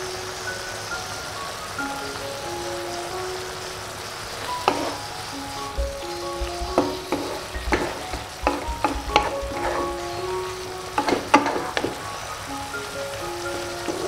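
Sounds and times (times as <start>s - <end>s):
frying hiss: 0.0s - 14.0s
soft background music: 0.0s - 14.0s
wooden spatula scraping wok: 4.7s - 5.0s, 5.8s - 12.0s.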